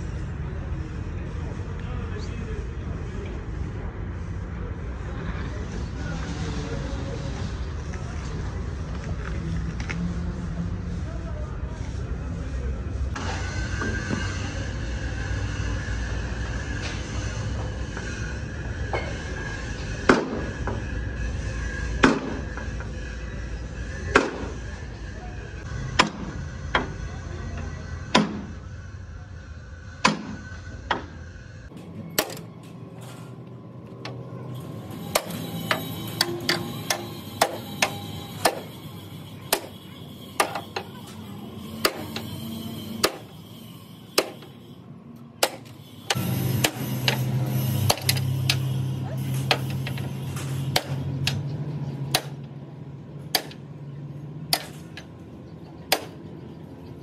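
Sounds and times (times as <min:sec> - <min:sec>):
hammer on sheet metal: 0:34.9 - 0:38.7, 0:39.5 - 0:39.7, 0:41.7 - 0:42.3, 0:43.0 - 0:43.3, 0:44.2 - 0:44.6, 0:45.4 - 0:51.4.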